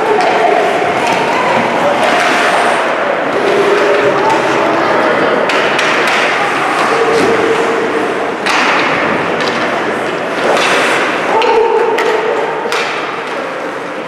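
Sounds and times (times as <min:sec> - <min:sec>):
hockey sticks and puck knocking: 0:00.0 - 0:02.6, 0:05.4 - 0:07.7, 0:08.4 - 0:13.8
skating on ice: 0:00.0 - 0:14.0
spectators talking and calling out: 0:00.0 - 0:14.0.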